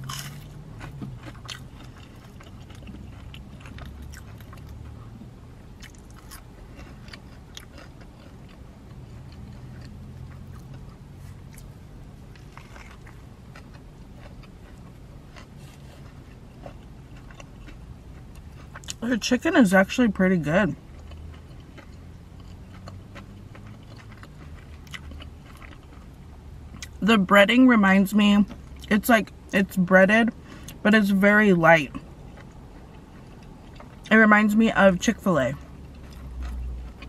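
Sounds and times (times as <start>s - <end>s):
crunchy chewing: 0.0s - 5.1s, 5.7s - 19.0s, 20.7s - 27.0s, 31.9s - 34.1s, 35.6s - 37.0s.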